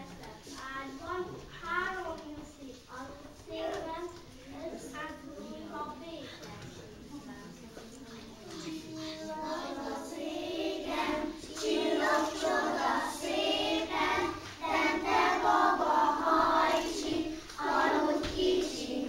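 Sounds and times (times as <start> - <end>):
children singing in chorus: 8.5 - 19.0.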